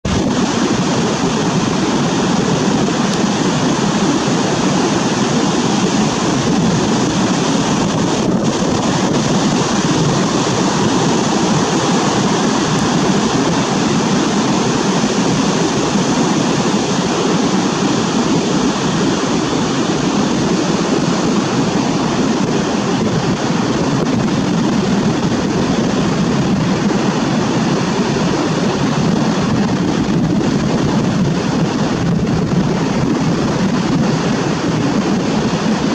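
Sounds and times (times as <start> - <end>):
ocean surf roaring: 0.0 - 35.9.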